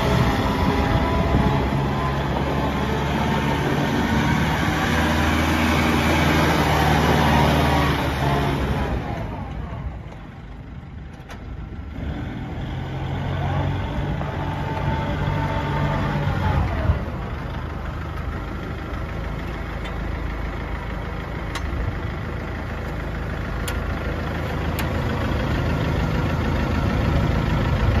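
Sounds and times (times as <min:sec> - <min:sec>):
diesel engine running: 0:00.0 - 0:28.0.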